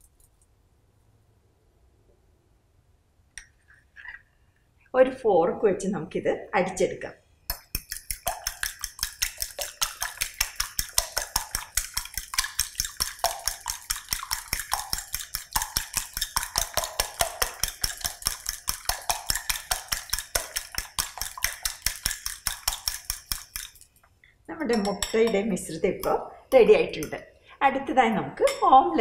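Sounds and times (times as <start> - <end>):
fork clicking against glass bowl: 7.5 - 23.9, 24.7 - 25.4
liquid egg swishing: 7.6 - 24.0.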